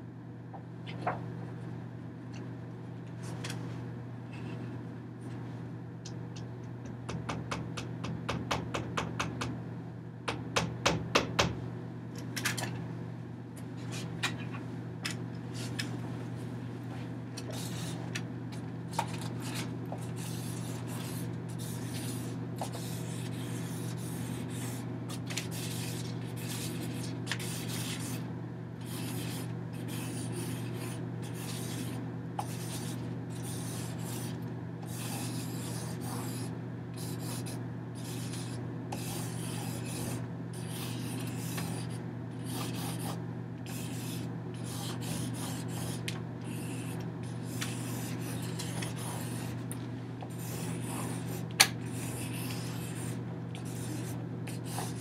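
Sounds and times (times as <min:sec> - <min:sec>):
low electrical hum: 0:00.0 - 0:55.0
drawing tool scratching paper: 0:19.4 - 0:28.2, 0:28.8 - 0:49.6, 0:50.3 - 0:55.0.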